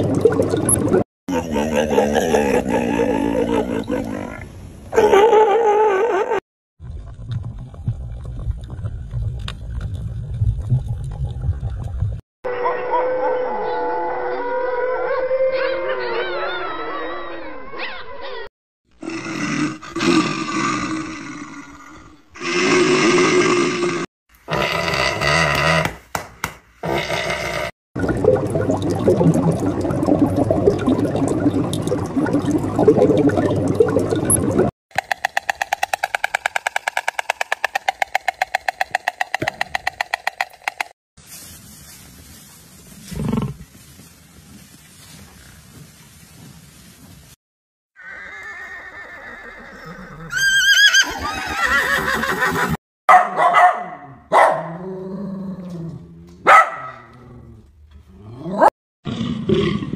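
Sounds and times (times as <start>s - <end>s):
crackly bubbling gurgle: 0.0s - 1.0s, 6.8s - 12.2s, 28.0s - 34.7s
pitched clicking pulses: 34.9s - 40.9s
horse whinny: 48.0s - 52.8s
puppy barking: 53.1s - 54.8s, 56.4s - 57.1s.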